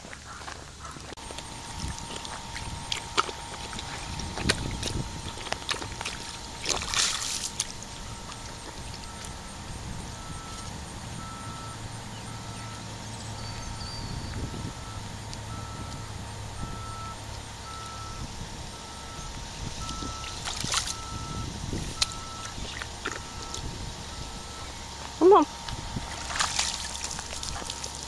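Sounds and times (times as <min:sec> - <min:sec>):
low steady hum: 0:00.0 - 0:28.0
backup alarm beeping: 0:00.3 - 0:28.0.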